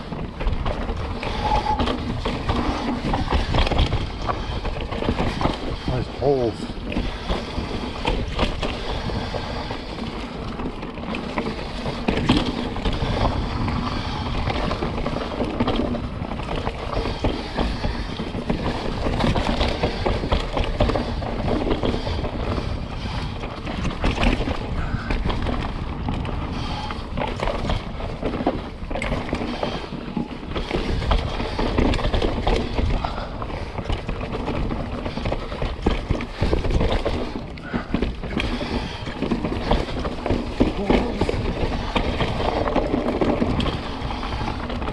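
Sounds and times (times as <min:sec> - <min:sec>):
bike knocking and rattling: 0:00.0 - 0:44.9
rush of tyres and air: 0:00.0 - 0:44.9.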